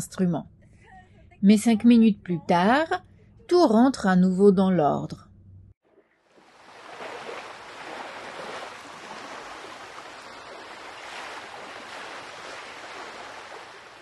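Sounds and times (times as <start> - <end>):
water rushing along hull: 6.2 - 14.0.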